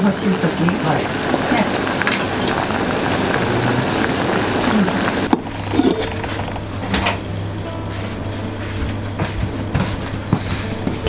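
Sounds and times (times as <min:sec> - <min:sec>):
beans bubbling in a pot: 0:00.0 - 0:07.6
steady low hum: 0:00.0 - 0:11.0.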